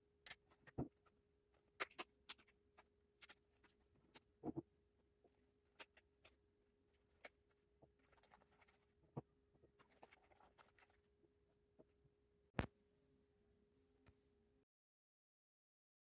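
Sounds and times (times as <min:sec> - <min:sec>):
cotton swabs clicking and rustling: 0:00.2 - 0:04.6, 0:05.2 - 0:06.4, 0:07.0 - 0:08.9.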